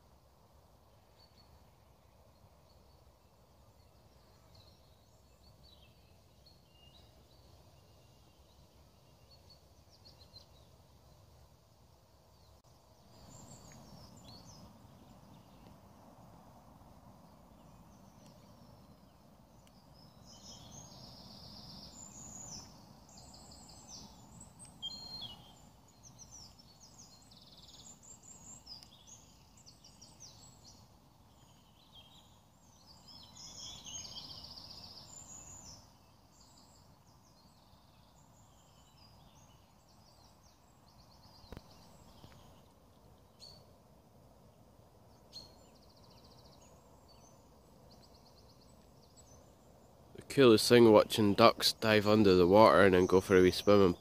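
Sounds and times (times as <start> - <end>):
small songbirds singing: 0.0 - 54.0
low steady background rumble: 10.6 - 34.0.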